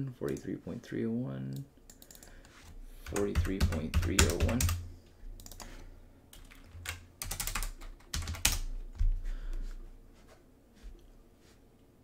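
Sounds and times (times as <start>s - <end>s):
computer keyboard typing: 1.9s - 2.3s, 3.0s - 8.7s.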